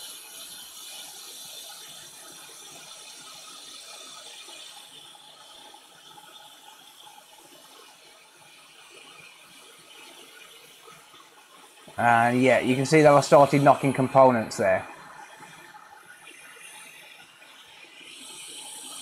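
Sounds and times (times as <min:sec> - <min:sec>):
hot air blower hissing: 0:12.0 - 0:15.0.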